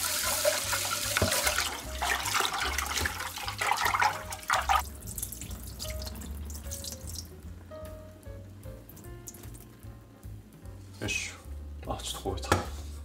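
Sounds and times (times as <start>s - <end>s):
tap water splashing: 0.3s - 7.3s.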